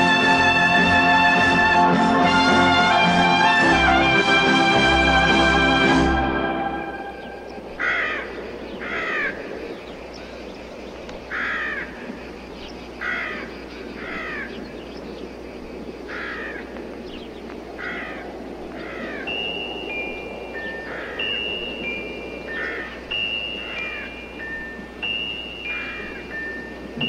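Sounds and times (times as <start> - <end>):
steady outdoor hiss: 0.0 - 27.0
harsh cawing bird calls: 7.2 - 27.0.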